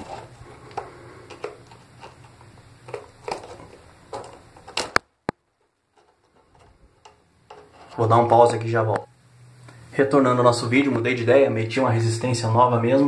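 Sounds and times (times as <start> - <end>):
hands clicking and knocking parts: 0.0 - 8.0.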